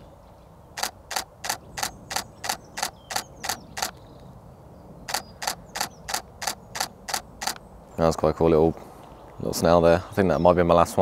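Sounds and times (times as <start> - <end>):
camera shutter clicks: 0.8 - 4.0, 5.1 - 7.6.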